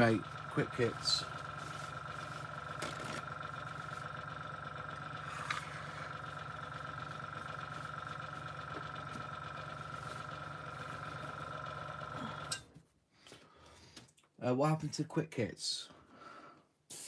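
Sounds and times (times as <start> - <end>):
air compressor humming: 0.0 - 12.7
paper rustle: 1.5 - 4.0.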